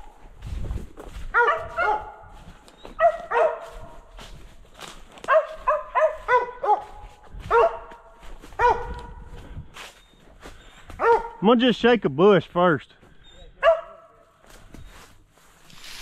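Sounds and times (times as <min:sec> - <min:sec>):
dog barking sharply: 0:01.3 - 0:02.2, 0:03.0 - 0:04.0, 0:05.3 - 0:08.0, 0:08.6 - 0:09.2, 0:11.0 - 0:11.4, 0:13.6 - 0:14.1.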